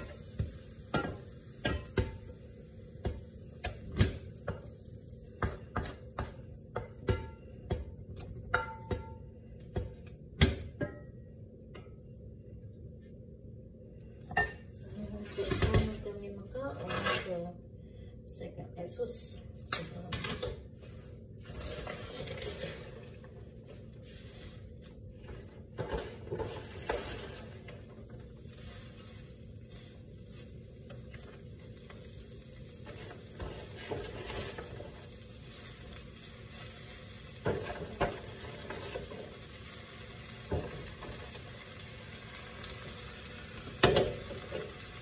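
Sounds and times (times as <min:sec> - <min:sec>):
leaves sizzling in a skillet: 0:00.0 - 0:06.4, 0:20.9 - 0:45.0
rustles and knocks of leaves and plastic: 0:21.4 - 0:39.6.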